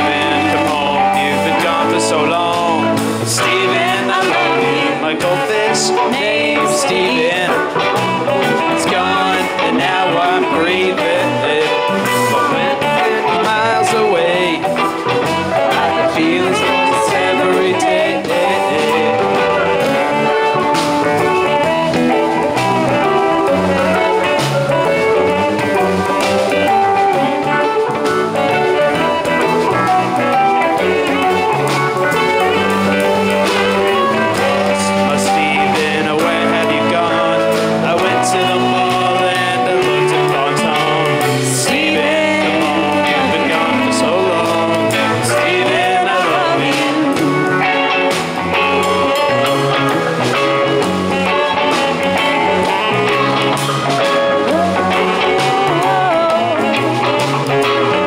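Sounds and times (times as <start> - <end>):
drum kit: 0.0 - 58.0
electric bass: 0.0 - 58.0
electric guitars: 0.0 - 58.0
saxophone: 0.0 - 58.0.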